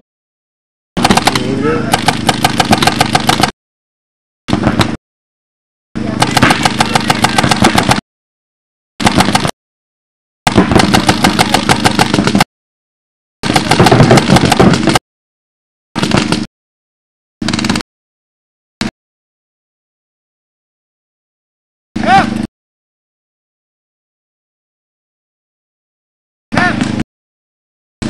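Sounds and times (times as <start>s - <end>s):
paintball marker firing: 1.0s - 3.5s, 6.2s - 8.0s, 9.0s - 9.5s, 10.5s - 12.5s, 13.4s - 15.0s, 16.0s - 16.5s.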